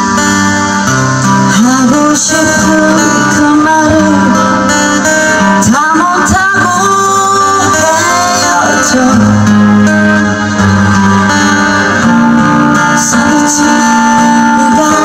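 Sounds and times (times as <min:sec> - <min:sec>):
live band playing: 0:00.0 - 0:15.0
woman singing: 0:01.4 - 0:09.7, 0:12.9 - 0:15.0.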